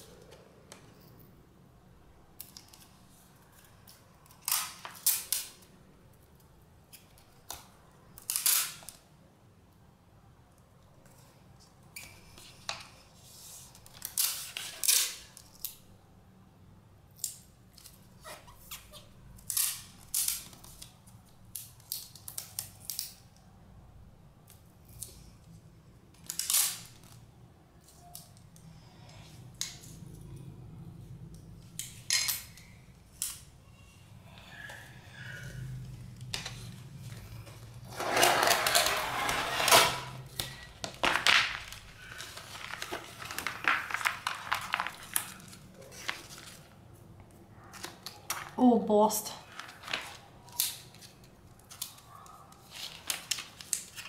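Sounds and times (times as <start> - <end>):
adhesive tape ripping: 26.2 - 27.2
paper rustling: 36.5 - 46.8, 49.5 - 54.0.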